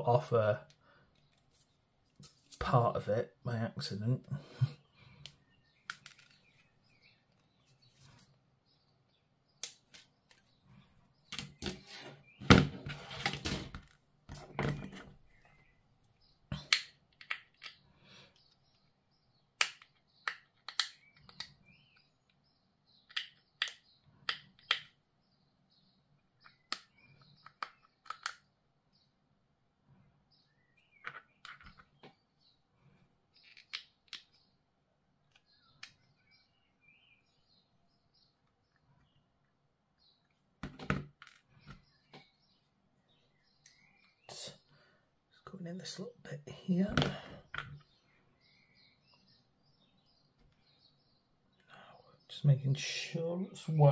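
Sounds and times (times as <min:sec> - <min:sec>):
plastic parts being handled: 0:05.2 - 0:08.4, 0:30.9 - 0:32.1, 0:33.3 - 0:34.4.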